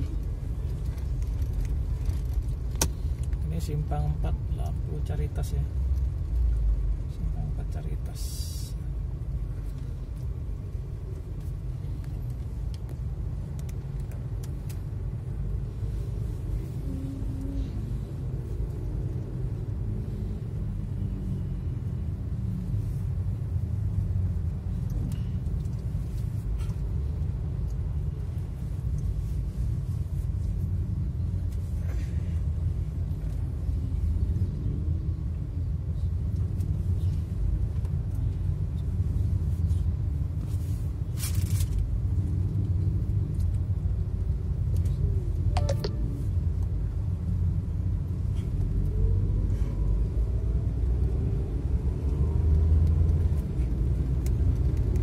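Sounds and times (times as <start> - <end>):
vehicle engines and tyres: 0.0 - 55.0
sharp high sounds: 45.6 - 46.2.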